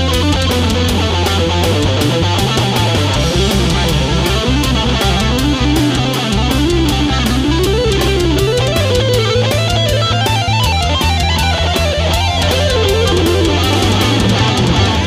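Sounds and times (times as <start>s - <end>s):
drum and cymbal beat: 0.0s - 15.0s
electric guitar fast melodic run: 0.0s - 15.0s
held bass notes: 0.0s - 15.0s.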